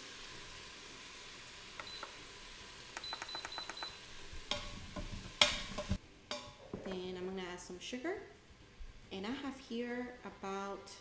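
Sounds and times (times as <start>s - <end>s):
faint sizzling: 0.0s - 11.0s
short high beeps: 3.0s - 4.0s
wooden spoon knocking on pot: 4.5s - 7.5s.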